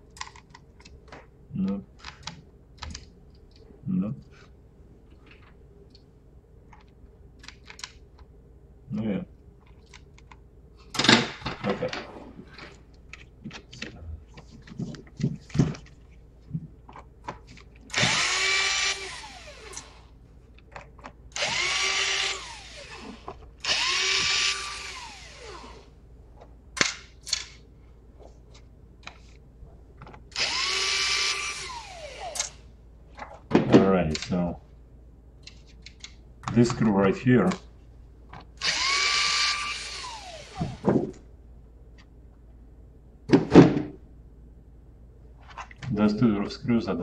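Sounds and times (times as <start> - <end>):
electric screwdriver whirring: 17.9 - 20.0, 21.4 - 25.8, 30.3 - 32.6, 38.6 - 40.8.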